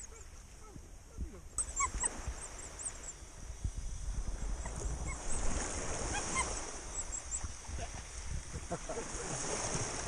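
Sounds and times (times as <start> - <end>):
shallow sea water at shoreline: 0.0 - 10.0
wind rumble: 0.6 - 10.0
small bird chirping: 1.5 - 3.3, 6.1 - 7.6.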